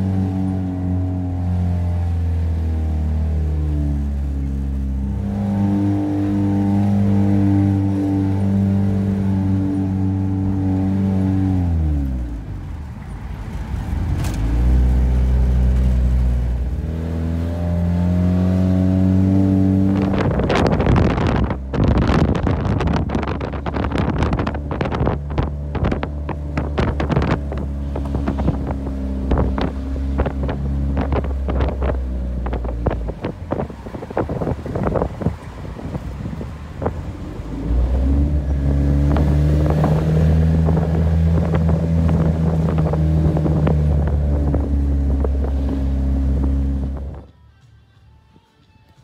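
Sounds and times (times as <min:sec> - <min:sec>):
car engine running: 0:00.0 - 0:47.3
wind buffeting microphone: 0:19.0 - 0:47.3.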